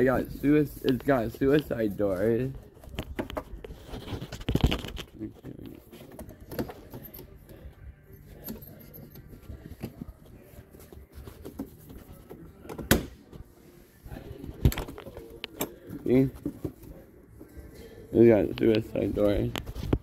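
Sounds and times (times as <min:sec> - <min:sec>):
rustling handling noise: 0:00.0 - 0:12.7.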